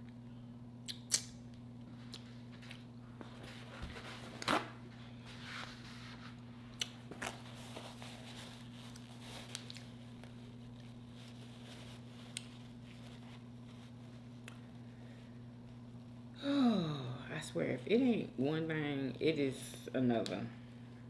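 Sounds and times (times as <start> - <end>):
low electrical hum: 0.0 - 21.0
paper napkin rustling: 2.3 - 14.4
person chewing: 6.8 - 7.0.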